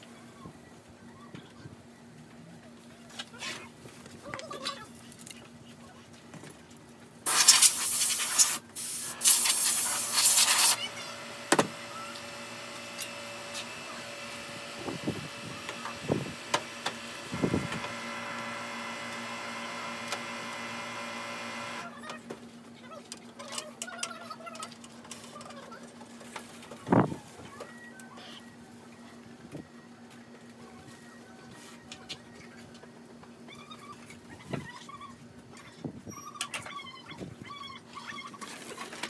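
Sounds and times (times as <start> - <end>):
aerosol spray hissing: 7.3 - 10.8
machine hum: 8.6 - 22.0.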